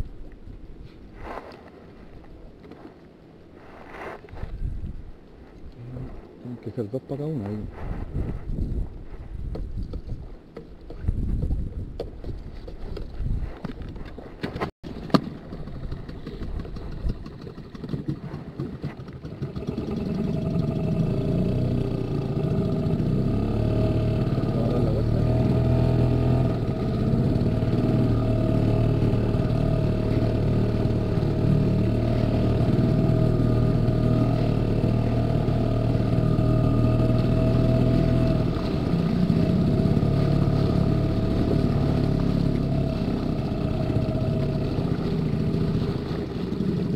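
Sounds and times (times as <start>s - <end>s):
wind on microphone: 3.6s - 6.4s, 7.5s - 14.7s
outboard motor running: 14.6s - 46.9s.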